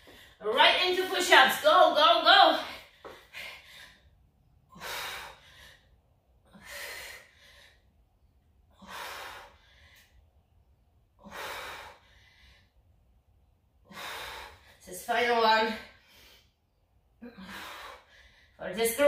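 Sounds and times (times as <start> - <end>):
woman breathing hard: 0.0 - 0.4, 2.6 - 10.5, 11.1 - 13.0, 13.8 - 14.8, 15.7 - 18.6.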